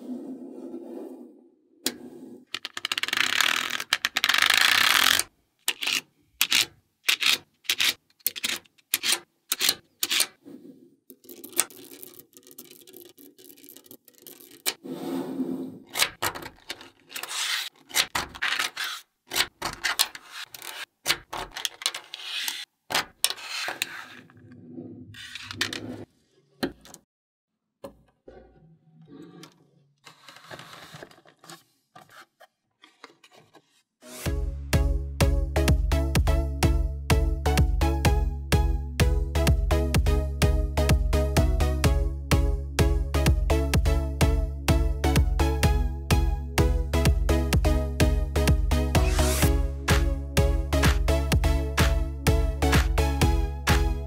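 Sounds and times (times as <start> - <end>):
balls scraping across table: 0.0 - 9.2, 10.0 - 12.2, 13.0 - 19.1, 19.7 - 20.9, 21.7 - 27.0, 28.2 - 34.2
magnetic balls clicking together: 11.1 - 14.8.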